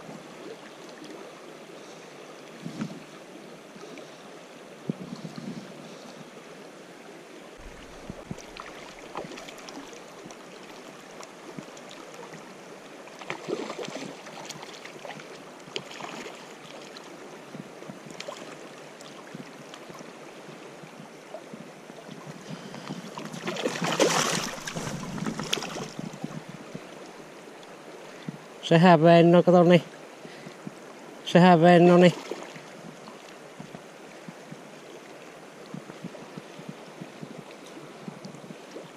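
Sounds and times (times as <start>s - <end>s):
fast river current rushing: 0.0s - 38.9s
fish splashing at the surface: 7.6s - 10.9s, 13.2s - 16.9s, 23.2s - 26.2s
small splashes: 7.6s - 12.5s, 13.1s - 17.2s, 23.1s - 26.2s, 32.1s - 33.3s.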